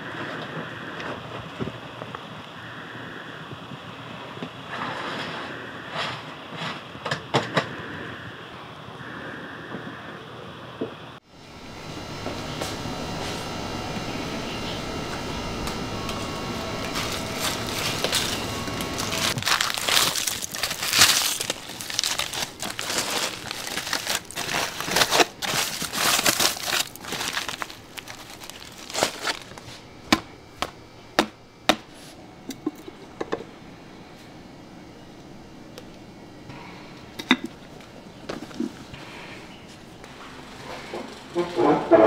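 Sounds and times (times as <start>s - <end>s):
aluminium foil crinkling: 16.1s - 29.9s
clay crust crackling and breaking: 16.9s - 30.3s.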